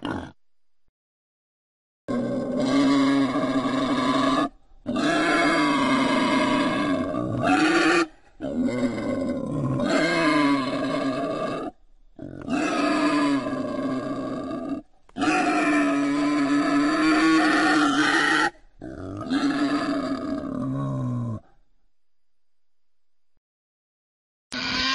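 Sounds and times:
wild boar grunting calls: 0:02.1 - 0:21.6.

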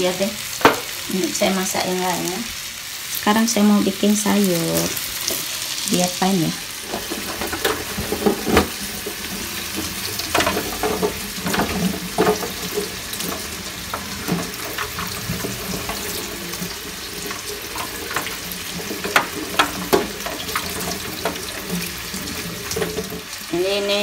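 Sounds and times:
beans rubbed and rinsed: 0:04.3 - 0:24.0.

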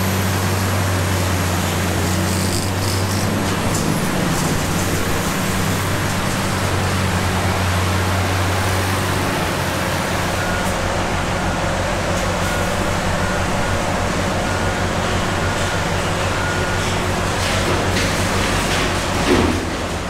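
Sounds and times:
wood grinder droning: 0:00.0 - 0:12.4.

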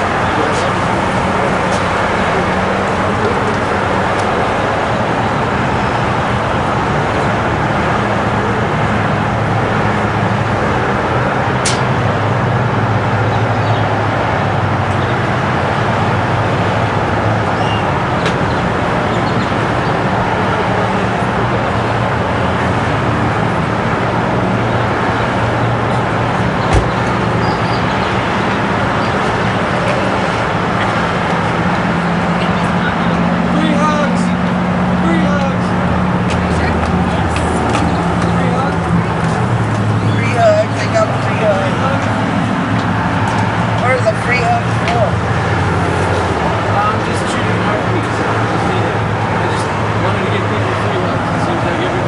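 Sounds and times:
road traffic noise: 0:00.0 - 0:52.0
sharp click: 0:11.6 - 0:11.9
short thump: 0:26.7 - 0:27.2.

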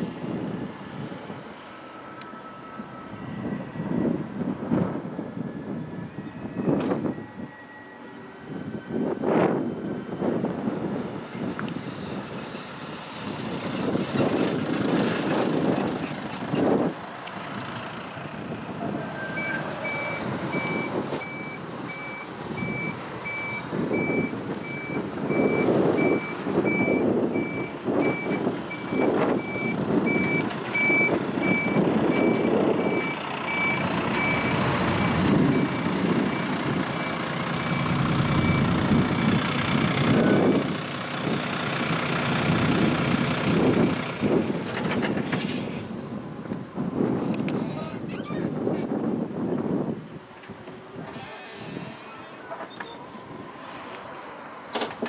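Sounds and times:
low rumble: 0:35.0 - 0:40.4
high electronic beeps: 0:37.8 - 0:38.8.

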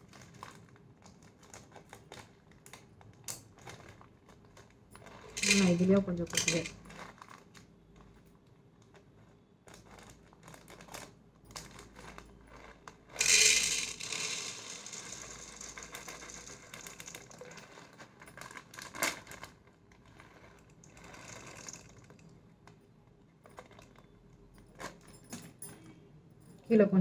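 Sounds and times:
peppercorns pouring into glass jar: 0:05.3 - 0:06.9, 0:13.2 - 0:18.4, 0:20.8 - 0:22.1.

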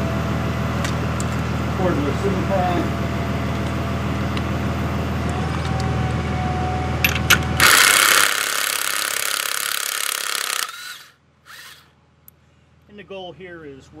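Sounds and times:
steady low hum: 0:00.0 - 0:14.0
impact wrench hammering: 0:07.6 - 0:11.8.

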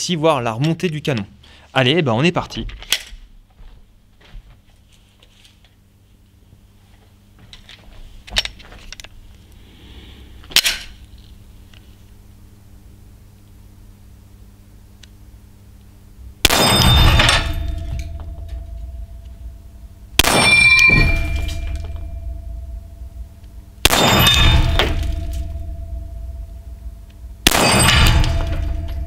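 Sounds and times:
pistol shots: 0:16.4 - 0:17.9, 0:20.2 - 0:22.0, 0:23.8 - 0:25.6, 0:27.4 - 0:29.0
steel gong ringing: 0:20.2 - 0:29.0.

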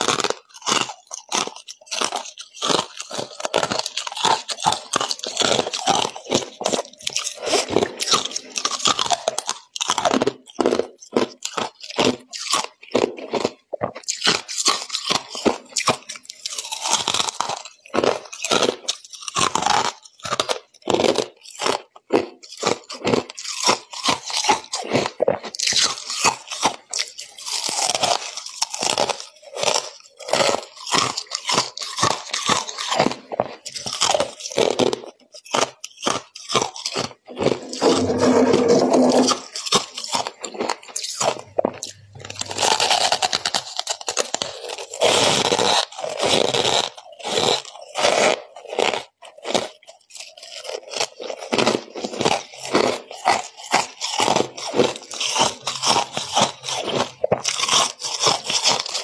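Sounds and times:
ice crunching: 0:41.4 - 0:43.6.

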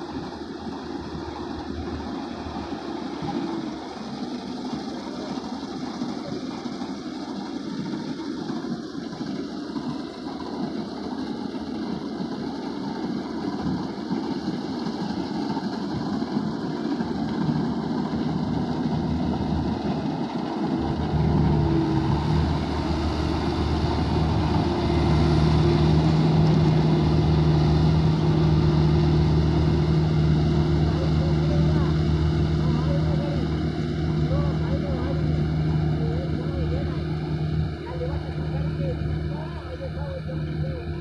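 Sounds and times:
combine harvester running: 0:00.0 - 0:41.0.

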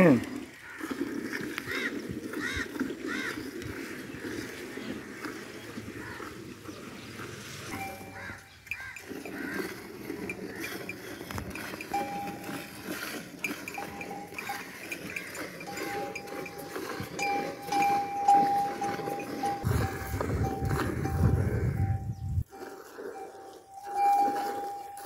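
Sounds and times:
milk squirting into steel pail: 0:07.1 - 0:20.0
cowbells ringing: 0:07.7 - 0:22.2, 0:23.0 - 0:25.0.

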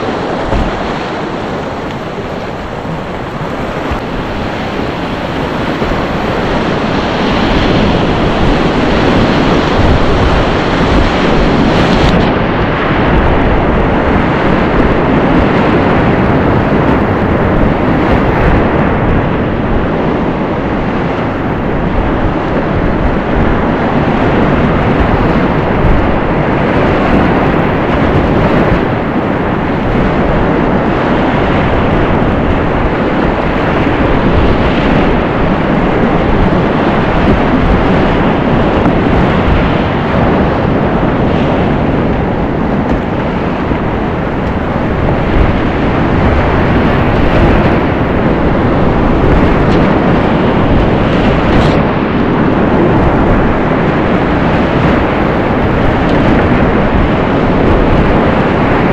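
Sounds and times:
whitewater rapids rushing: 0:00.0 - 0:19.9.

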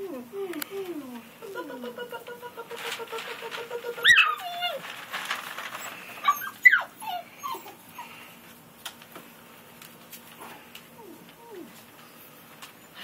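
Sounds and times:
puppies yipping and whining: 0:03.9 - 0:04.9, 0:05.8 - 0:08.4.

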